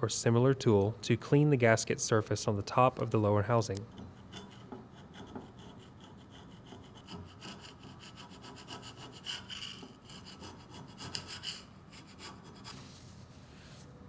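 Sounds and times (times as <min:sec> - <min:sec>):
screwdriver scraping metal: 0:03.9 - 0:12.7.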